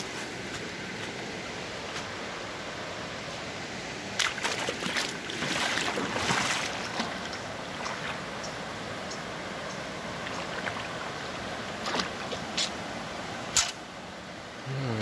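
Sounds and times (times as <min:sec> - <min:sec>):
river water over rocks: 0:00.0 - 0:14.6
water splashing: 0:04.1 - 0:08.3, 0:10.2 - 0:12.8.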